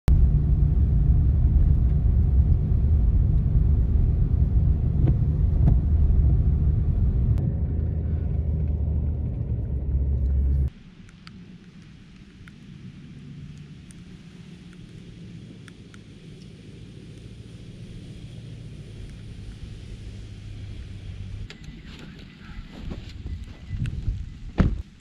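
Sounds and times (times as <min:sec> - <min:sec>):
road and engine rumble in cabin: 0:00.1 - 0:10.7, 0:14.4 - 0:25.0
quiet outdoor noise: 0:00.1 - 0:25.0.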